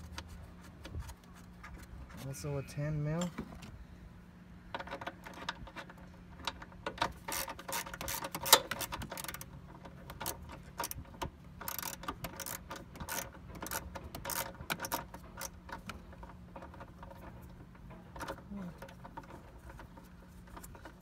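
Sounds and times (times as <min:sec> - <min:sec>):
ratchet wrench clicking: 0:06.4 - 0:16.0.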